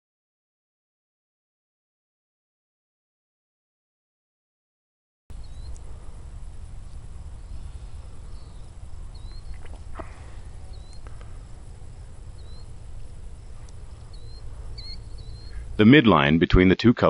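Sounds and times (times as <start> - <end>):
bird chirping: 5.3 - 16.3
steady low rumble: 5.3 - 17.0
faint clicks: 5.6 - 5.9, 9.1 - 11.6, 13.5 - 15.6.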